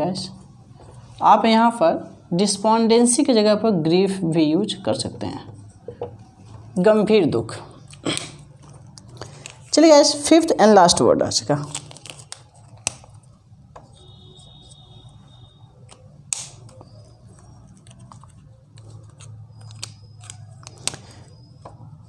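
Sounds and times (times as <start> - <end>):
marker squeaking on whiteboard: 13.7 - 22.0.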